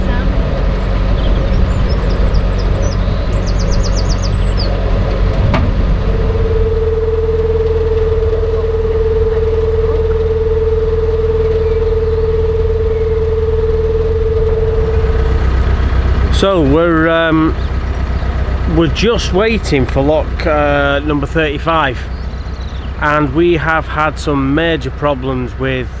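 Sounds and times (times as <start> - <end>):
steady single-pitched tone: 0.0 - 18.5
boat engine running: 0.0 - 26.0.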